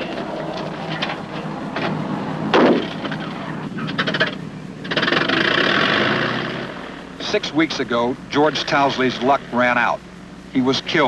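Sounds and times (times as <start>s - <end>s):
propeller aircraft engine running: 0.0s - 11.0s.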